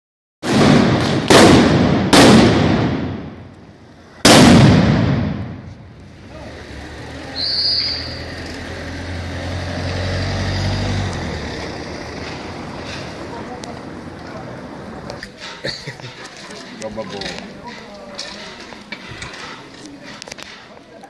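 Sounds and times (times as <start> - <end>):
firecracker bangs echoing: 0.4 - 3.5, 4.2 - 5.9.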